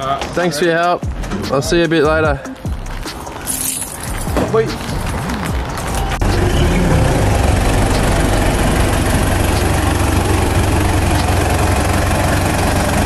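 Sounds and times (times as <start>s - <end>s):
car engine running and revving: 4.8s - 13.0s.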